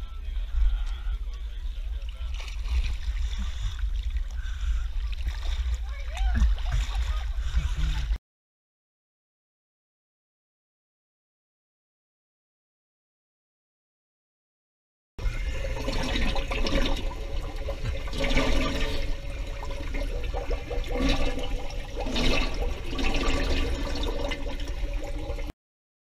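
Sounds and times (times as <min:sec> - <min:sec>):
low rumble: 0:00.0 - 0:08.2
underwater air bubbling: 0:01.8 - 0:08.2, 0:15.2 - 0:25.5.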